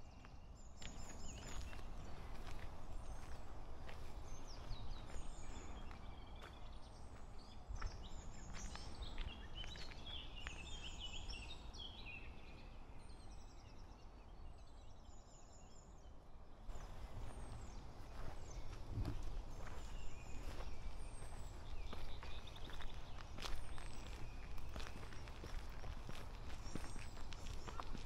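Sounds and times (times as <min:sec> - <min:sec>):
songbirds singing and chirping: 0:00.0 - 0:28.0
footsteps on a path: 0:00.8 - 0:11.5, 0:16.7 - 0:28.0.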